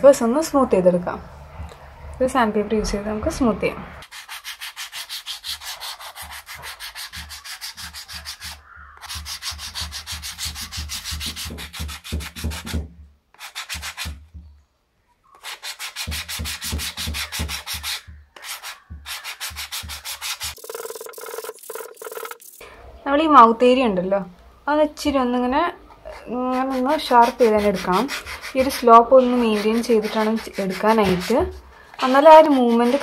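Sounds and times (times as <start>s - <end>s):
sandpaper rubbing wood: 4.0s - 12.8s, 13.4s - 14.2s, 15.4s - 22.6s, 26.1s - 33.0s.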